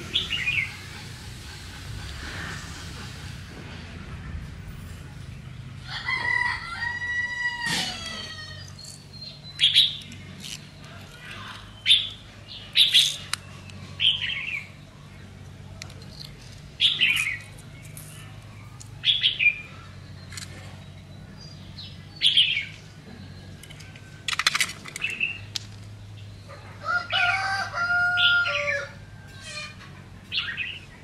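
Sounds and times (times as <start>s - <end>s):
small birds chirping: 0.0s - 3.4s, 8.0s - 26.8s, 30.2s - 31.0s
steady low hum: 0.0s - 5.9s
rooster crowing: 5.8s - 8.7s, 26.8s - 29.1s.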